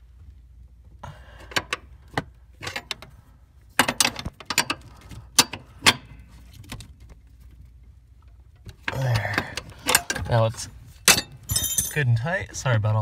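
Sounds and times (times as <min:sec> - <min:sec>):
wrench metal clicks and knocks: 0:03.8 - 0:06.1.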